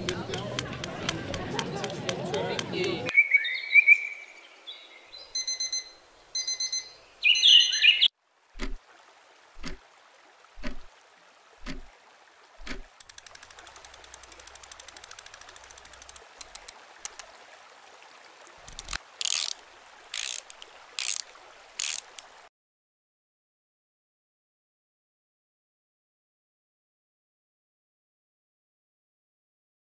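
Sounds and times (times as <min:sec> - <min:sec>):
key winding mechanism ratcheting: 0:00.0 - 0:03.0, 0:13.0 - 0:16.7, 0:18.6 - 0:19.6, 0:20.2 - 0:21.2, 0:21.8 - 0:22.2
clock ticking: 0:00.0 - 0:03.1, 0:11.6 - 0:11.9, 0:12.6 - 0:17.2.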